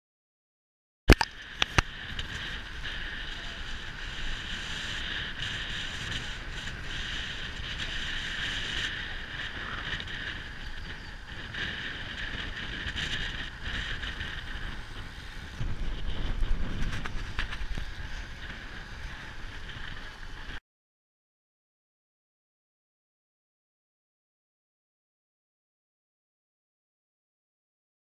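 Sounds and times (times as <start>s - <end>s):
wind rushing over microphone: 1.1s - 20.6s
road rumble: 1.2s - 20.6s.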